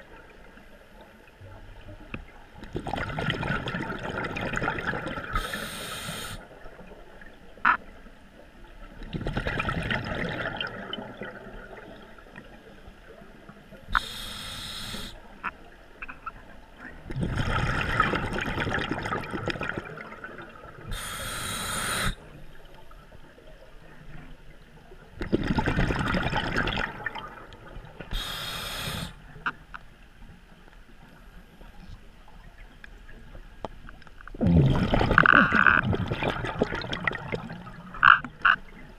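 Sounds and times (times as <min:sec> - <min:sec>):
exhaled bubbles rushing: 0:02.7 - 0:05.4, 0:09.0 - 0:12.2, 0:17.0 - 0:21.0, 0:25.2 - 0:28.2, 0:34.4 - 0:38.1
scuba regulator inhale hiss: 0:05.3 - 0:06.5, 0:13.9 - 0:15.3, 0:20.9 - 0:22.3, 0:28.1 - 0:29.2.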